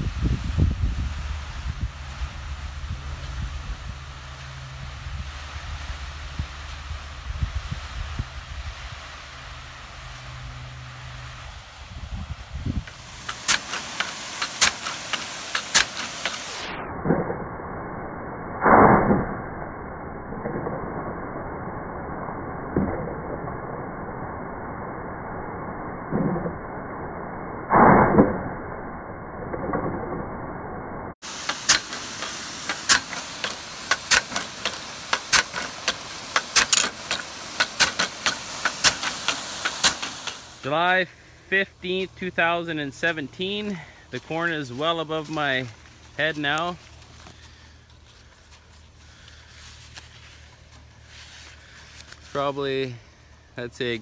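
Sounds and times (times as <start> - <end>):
sprinkler water jet hissing: 0.0 - 16.7, 31.2 - 53.0
water spray hissing: 12.7 - 16.7, 31.2 - 41.4
sprinkler arm clacking: 12.8 - 16.6, 31.2 - 40.7.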